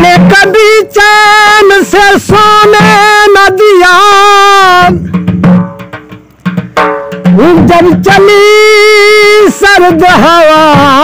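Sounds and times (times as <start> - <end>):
man singing folk song: 0.0 - 5.0, 7.4 - 11.0
drum strokes: 0.0 - 11.0.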